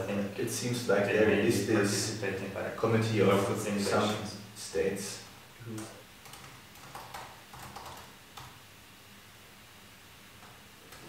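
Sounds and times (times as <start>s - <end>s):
laptop keyboard typing: 6.2s - 8.6s.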